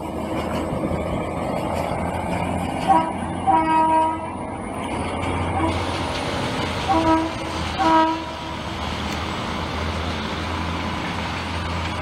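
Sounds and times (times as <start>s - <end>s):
train rumbling on rails: 0.0s - 12.0s
train horn blasts: 2.9s - 4.4s, 6.8s - 8.5s.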